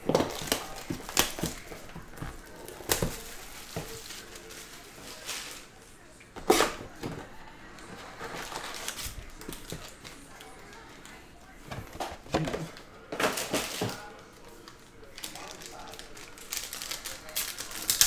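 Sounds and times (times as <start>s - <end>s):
cardboard and foil scuffing: 0.0s - 5.7s, 6.4s - 10.0s.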